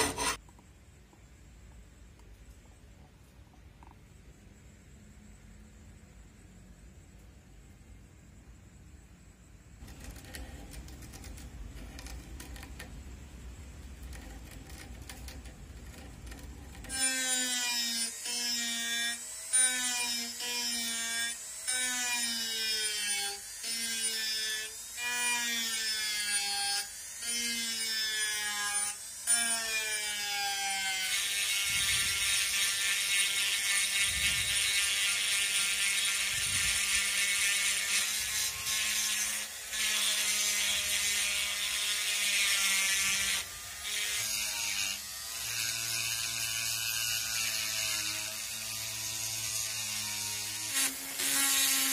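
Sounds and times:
high grinding bit on metal: 0.0s - 0.4s, 9.8s - 13.0s, 14.0s - 51.9s
rotary tool sanding metal: 0.0s - 0.4s, 9.8s - 13.1s, 13.9s - 51.9s.

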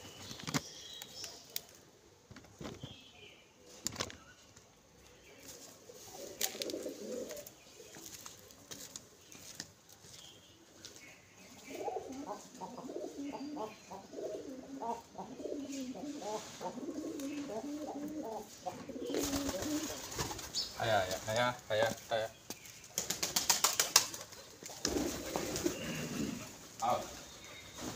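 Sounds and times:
pigeons cooing: 5.4s - 9.6s, 11.4s - 21.2s, 23.0s - 27.9s.

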